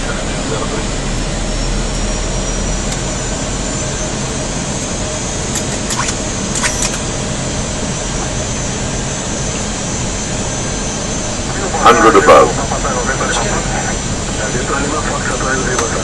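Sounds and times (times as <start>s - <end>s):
jet engine noise: 0.0s - 16.0s.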